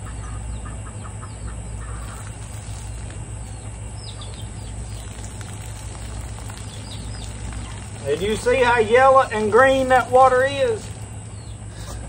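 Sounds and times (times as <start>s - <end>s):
chickens clucking: 0.0s - 8.8s
water poured onto grass: 2.0s - 11.1s.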